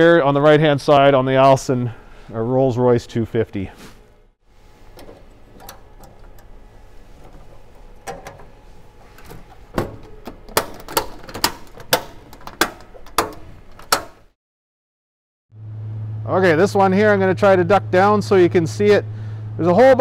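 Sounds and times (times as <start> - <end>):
light handling noise: 4.6 - 14.3
latches clicking and knocking: 4.8 - 14.3.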